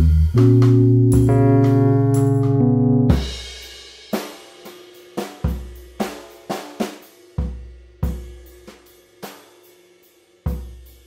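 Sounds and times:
deep kick drums: 0.0s - 3.4s
snare and hi-hat hits: 0.0s - 11.0s.

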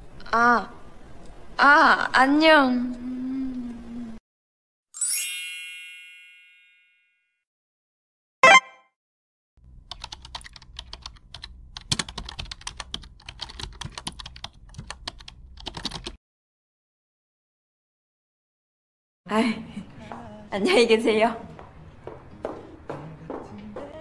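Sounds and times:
bright chime: 5.0s - 7.2s
rapid keyboard typing: 9.8s - 16.2s.

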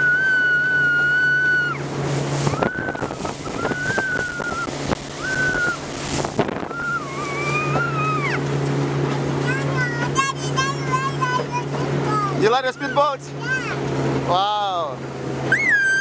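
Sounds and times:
high wavering tone: 0.0s - 5.9s, 6.6s - 8.4s
wind buffeting microphone: 0.0s - 9.5s
speedboat engine droning: 0.0s - 16.0s
water rushing past hull: 0.0s - 16.0s.

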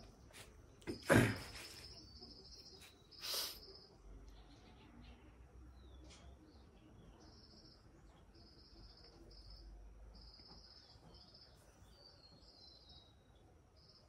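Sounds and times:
short bird chirps: 1.0s - 4.0s.

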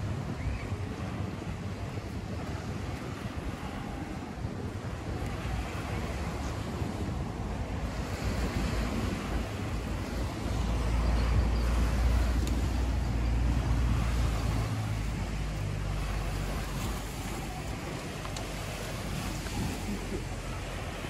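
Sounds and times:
sea surf: 0.0s - 21.0s
wind on microphone: 0.0s - 21.0s.

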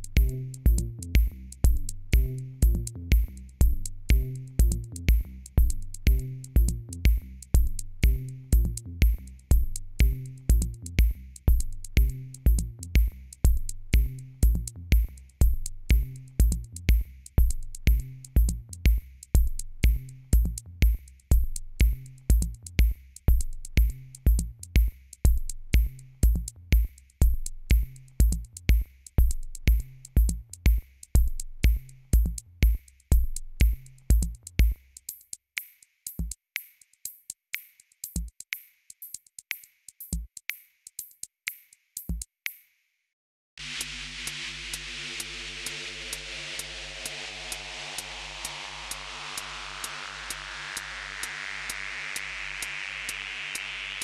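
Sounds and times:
bass line: 0.0s - 22.6s, 43.6s - 54.0s
drum machine beat: 0.0s - 42.7s, 43.6s - 54.0s.

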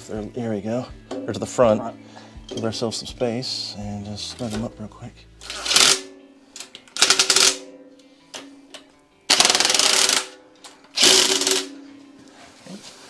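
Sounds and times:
impact driver rattling: 5.4s - 6.1s, 6.9s - 7.6s, 9.3s - 11.8s.

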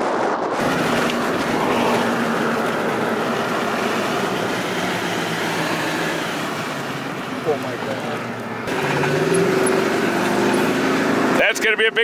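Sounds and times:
road and wind noise: 0.0s - 12.0s
low engine hum: 0.2s - 11.4s.

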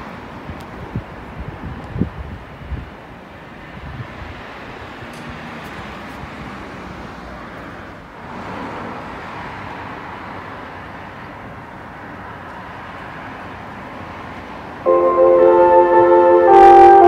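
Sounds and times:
steady background noise: 0.0s - 17.0s
loudspeaker chime melody: 14.9s - 17.0s.

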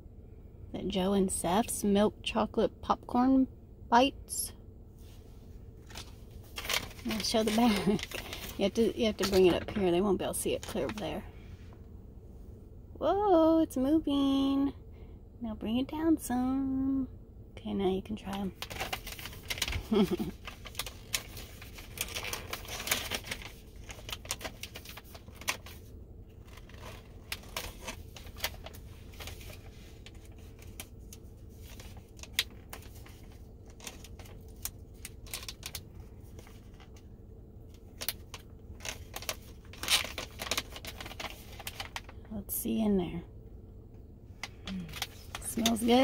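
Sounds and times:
plastic pouch crinkling: 5.8s - 11.0s, 18.6s - 37.0s, 37.7s - 42.2s, 44.5s - 46.0s.

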